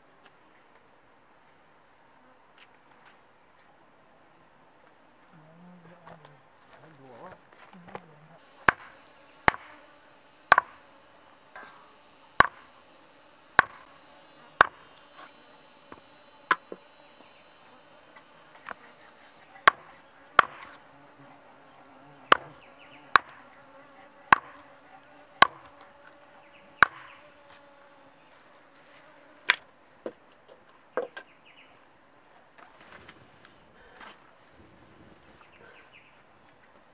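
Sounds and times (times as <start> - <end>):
insects droning: 0.0 - 36.9
machete chopping chicken on board: 8.6 - 9.7, 10.5 - 10.8, 12.4 - 12.7, 13.6 - 13.9.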